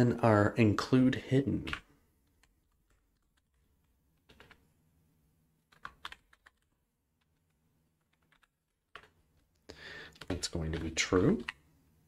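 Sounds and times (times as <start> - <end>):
faint keyboard typing: 1.6 - 4.7, 5.6 - 11.7.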